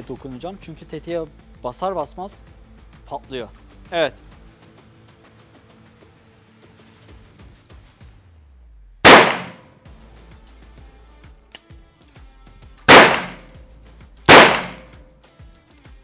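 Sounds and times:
revolver gunshots: 0:09.1 - 0:09.7, 0:12.9 - 0:13.5, 0:14.3 - 0:15.0.

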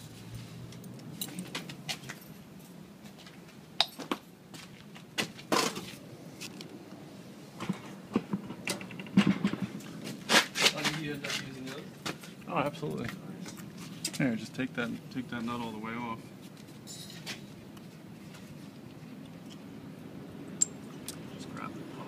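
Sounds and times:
light metallic clinks: 0:20.6 - 0:21.0.

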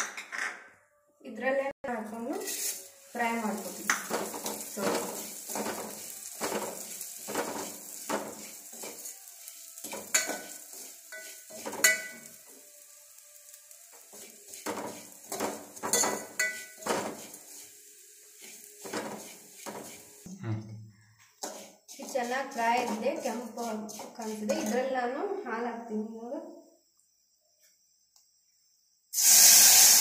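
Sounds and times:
light sizzle: 0:01.9 - 0:20.3, 0:21.4 - 0:25.4, 0:29.1 - 0:30.0
spoon scraping metal pot: 0:03.9 - 0:12.4, 0:14.1 - 0:17.8, 0:18.4 - 0:20.2, 0:21.4 - 0:25.0.

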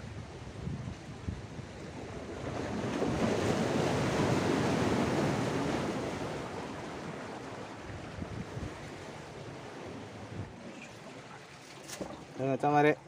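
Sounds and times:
sea wave surging against rocks: 0:02.0 - 0:11.7.

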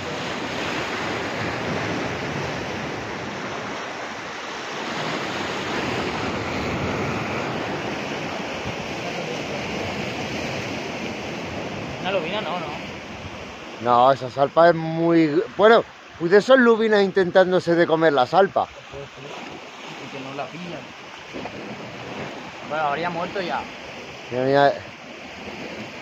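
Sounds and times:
sea surf washing on shore: 0:00.0 - 0:26.0.

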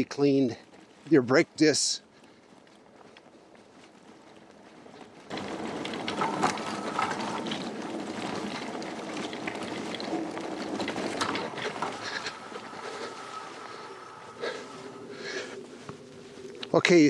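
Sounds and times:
bike rattling on rough track: 0:03.8 - 0:17.0.

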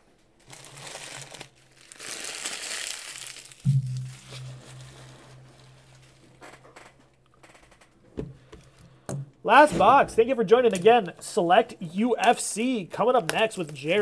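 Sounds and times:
plastic wrapper crinkling: 0:00.2 - 0:06.5, 0:10.4 - 0:11.2, 0:11.9 - 0:14.0
low steady hum: 0:03.6 - 0:06.4
thump: 0:03.7 - 0:05.0.

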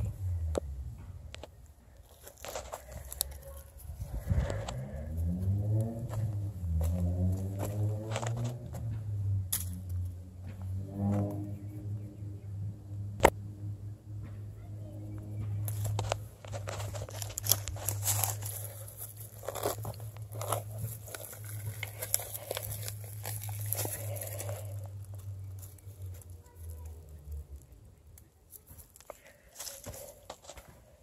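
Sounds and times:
dry grass and leaves rustling: 0:00.0 - 0:10.2, 0:15.2 - 0:31.0
roots tearing from soil: 0:02.0 - 0:06.1, 0:15.6 - 0:30.8.

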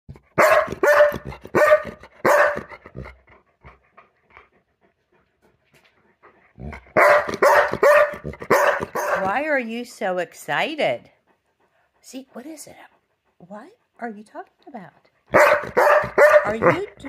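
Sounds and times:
dog barking: 0:00.3 - 0:02.8, 0:06.9 - 0:09.4, 0:15.3 - 0:16.9.

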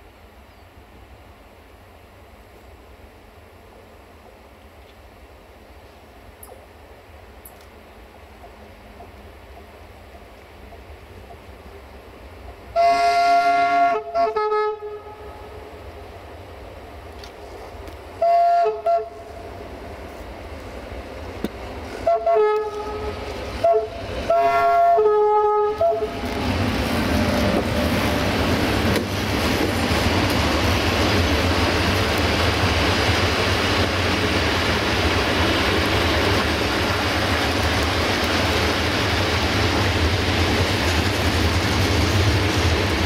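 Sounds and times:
train wheels rumbling on rails: 0:01.5 - 0:43.0
two-tone locomotive air horn: 0:12.7 - 0:15.7, 0:18.2 - 0:19.5, 0:22.0 - 0:26.3.

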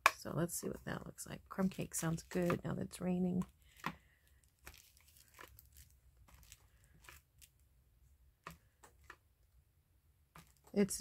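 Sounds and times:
paper rustling: 0:03.6 - 0:07.6.

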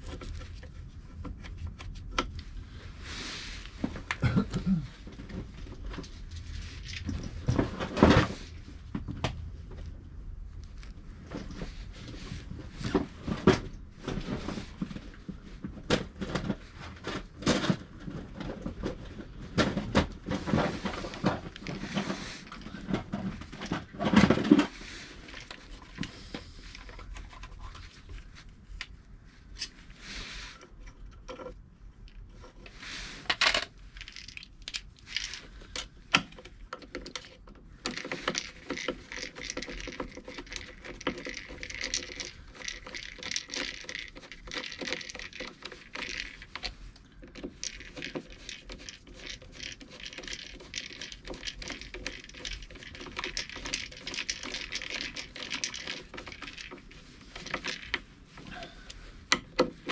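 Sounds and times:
rapid clicks and rattles: 0:15.8 - 0:28.3, 0:30.8 - 0:59.9.

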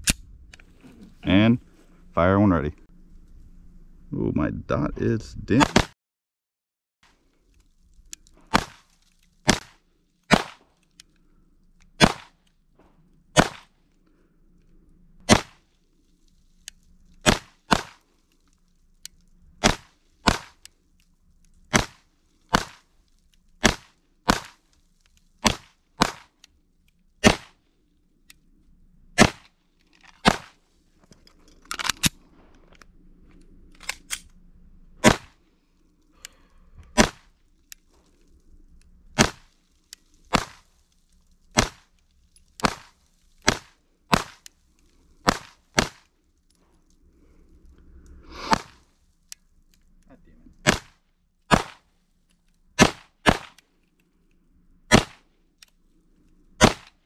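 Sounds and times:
pistol shots: 0:05.6 - 0:05.9, 0:08.5 - 0:08.9, 0:09.5 - 0:10.7, 0:12.0 - 0:12.4, 0:13.4 - 0:13.7, 0:15.3 - 0:15.6, 0:17.2 - 0:18.0, 0:19.6 - 0:20.6, 0:21.7 - 0:22.8, 0:23.6 - 0:24.6, 0:25.4 - 0:26.4, 0:27.2 - 0:27.6, 0:29.2 - 0:29.5, 0:30.2 - 0:30.6, 0:35.0 - 0:35.4, 0:36.9 - 0:37.3, 0:39.2 - 0:39.5, 0:40.3 - 0:40.6, 0:41.6 - 0:41.8, 0:42.6 - 0:44.4, 0:45.3 - 0:46.0, 0:48.4 - 0:48.8, 0:50.6 - 0:51.9, 0:52.8 - 0:53.6, 0:54.9 - 0:55.2, 0:56.6 - 0:57.0.

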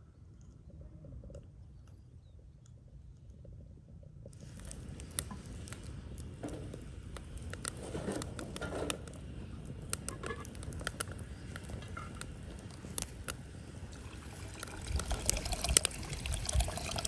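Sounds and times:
wood fire crackling and popping: 0:04.2 - 0:17.0
rustling handling noise: 0:04.3 - 0:13.7.

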